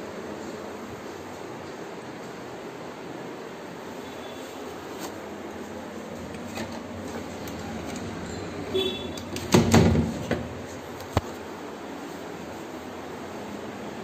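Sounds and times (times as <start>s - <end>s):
window sash sliding along track: 6.2s - 10.8s.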